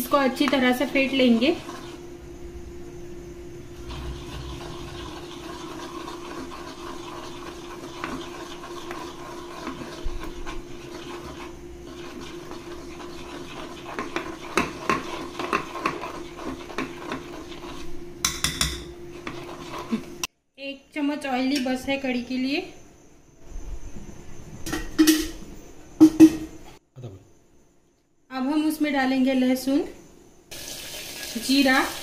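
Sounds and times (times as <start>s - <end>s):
steady low hum: 0.0s - 30.5s
spoon stirring batter: 4.0s - 20.2s.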